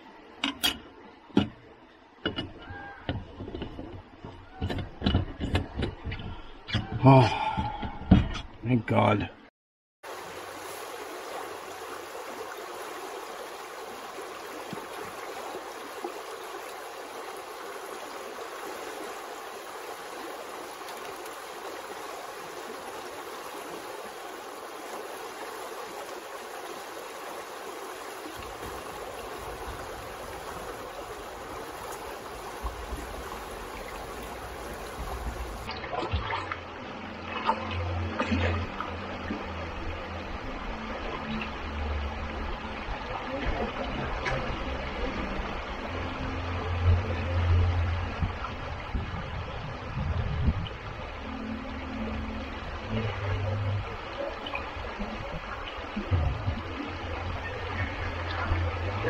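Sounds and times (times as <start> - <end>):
river water flowing: 10.0 - 59.0
low rumble: 55.9 - 59.0.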